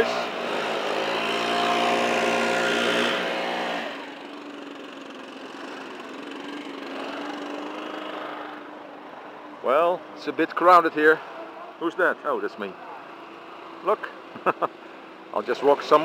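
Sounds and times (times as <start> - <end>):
leaf blower engine running: 0.0 - 7.6.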